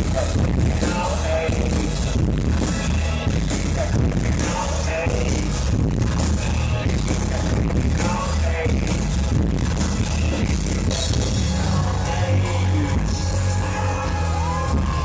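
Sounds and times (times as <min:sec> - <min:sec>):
heavy steady bass: 0:00.0 - 0:15.0
live industrial music: 0:00.0 - 0:15.0.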